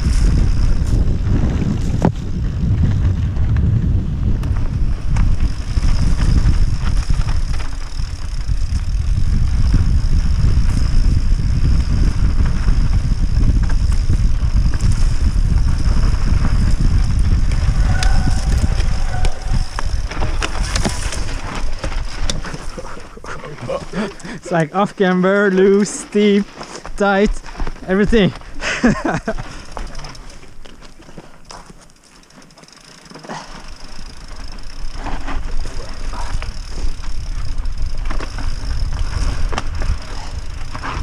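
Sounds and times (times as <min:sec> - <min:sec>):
wind rumbling on microphone: 0:00.0 - 0:25.0, 0:33.8 - 0:41.0
bike clattering over stones: 0:04.4 - 0:41.0.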